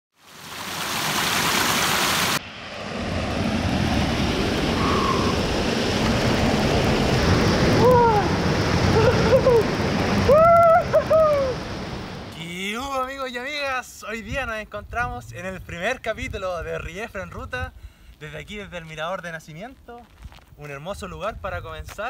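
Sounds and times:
waterfall roaring: 0.3s - 2.4s, 3.8s - 12.4s
short rising and falling calls: 4.5s - 5.8s.

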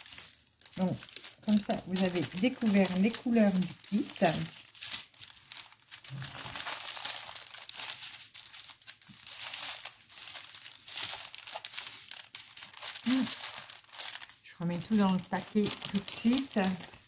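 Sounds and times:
plastic bags crinkling: 0.0s - 17.0s.

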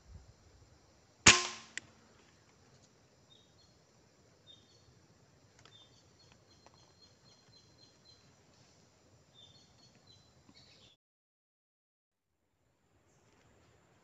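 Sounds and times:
air rifle shot: 1.3s - 1.8s
faint bird chirps: 4.4s - 5.0s, 5.6s - 11.0s.

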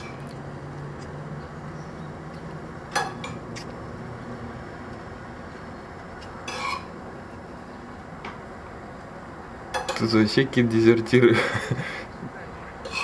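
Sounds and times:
steady background hum: 0.0s - 13.0s
tableware clatter: 2.9s - 3.4s, 9.7s - 10.1s
tableware clinking: 2.9s - 3.4s, 6.4s - 6.9s, 9.7s - 10.1s.

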